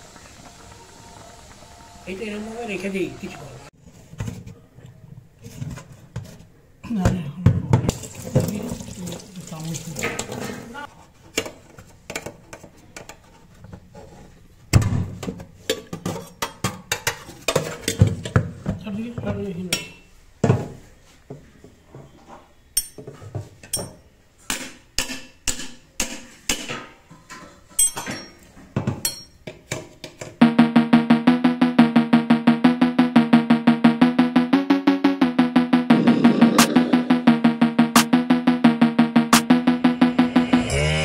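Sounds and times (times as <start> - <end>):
utensils and dishes clinking: 27.6 - 29.4
music with steady beat: 30.4 - 41.0.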